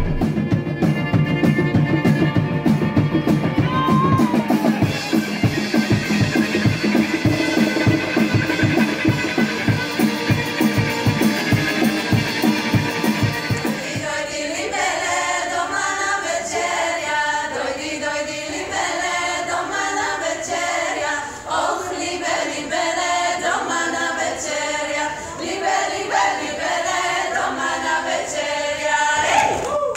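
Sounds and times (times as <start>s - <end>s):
women's choir singing a cappella: 13.4s - 29.9s.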